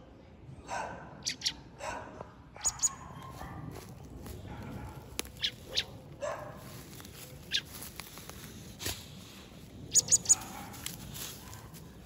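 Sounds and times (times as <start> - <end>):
dog sniffing: 8.0 - 12.0.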